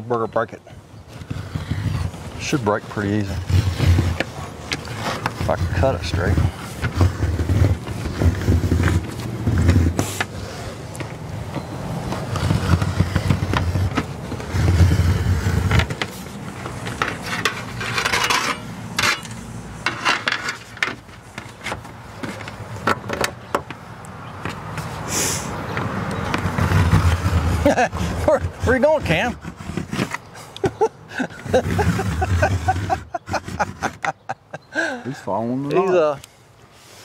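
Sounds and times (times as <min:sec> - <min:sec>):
knife scraping aluminium sheet: 0:01.1 - 0:10.4, 0:12.3 - 0:21.8, 0:26.3 - 0:30.4, 0:31.3 - 0:34.2.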